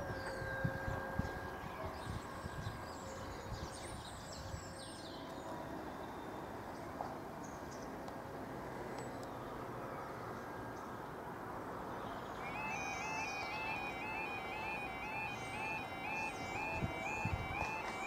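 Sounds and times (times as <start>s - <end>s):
small birds chirping: 12.0s - 18.0s.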